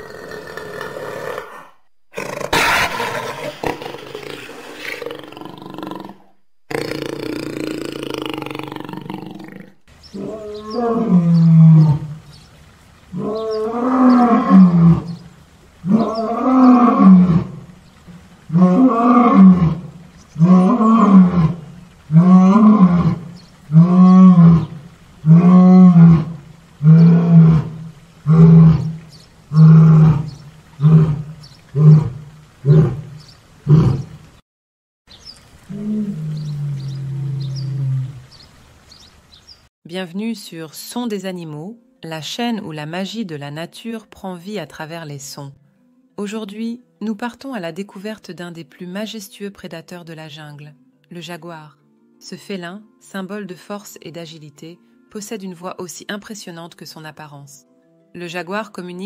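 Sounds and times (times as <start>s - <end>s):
big cat roaring: 0.0s - 12.2s, 13.1s - 15.2s, 15.8s - 17.7s, 18.5s - 34.2s, 35.7s - 38.2s.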